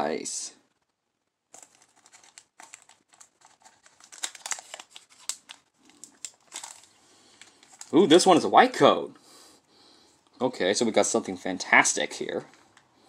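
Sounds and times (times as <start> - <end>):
foil wrapper crinkling and tearing: 1.5 - 8.3.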